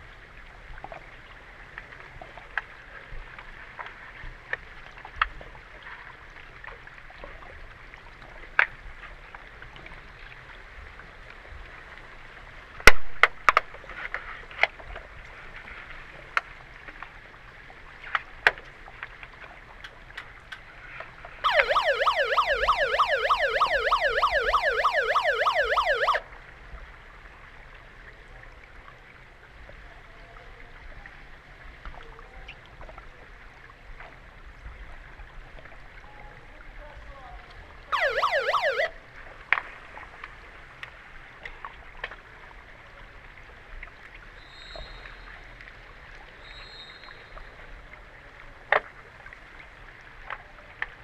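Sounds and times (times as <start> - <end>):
underwater siren warbling: 21.4 - 26.3, 37.9 - 39.0.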